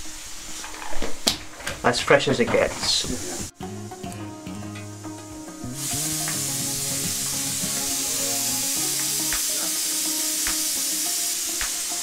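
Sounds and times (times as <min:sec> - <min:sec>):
pressure cooker whistle hissing: 0:05.7 - 0:12.0.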